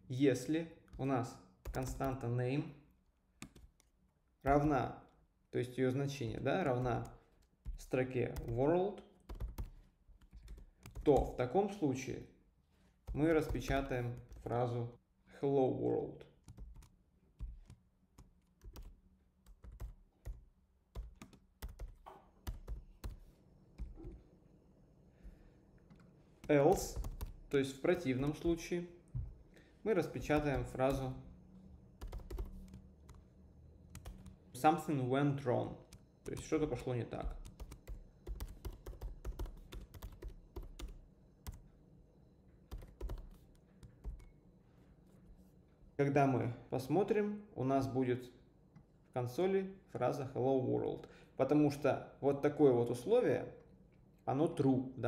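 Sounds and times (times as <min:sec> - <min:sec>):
typing on a keyboard: 0:01.6 - 0:02.2, 0:06.8 - 0:08.6, 0:09.2 - 0:11.4, 0:13.1 - 0:14.5, 0:16.5 - 0:20.4, 0:21.0 - 0:23.2, 0:25.9 - 0:27.4, 0:30.2 - 0:31.1, 0:32.0 - 0:33.2, 0:35.9 - 0:41.6, 0:42.7 - 0:44.4.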